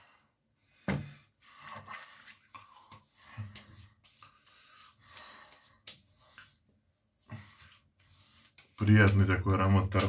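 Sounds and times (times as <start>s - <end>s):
hands rubbing skin: 2.2s - 10.0s.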